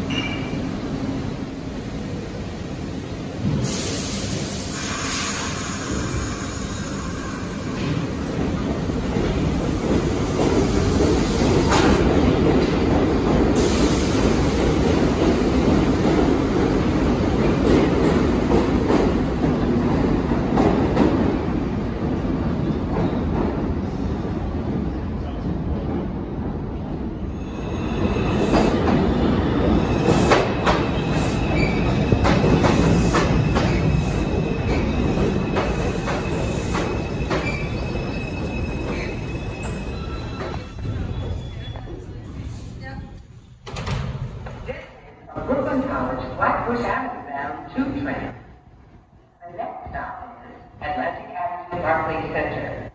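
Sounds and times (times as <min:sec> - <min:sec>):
train wheels rumbling on rails: 0:00.0 - 0:46.8
brief high-pitched hiss: 0:03.6 - 0:06.8.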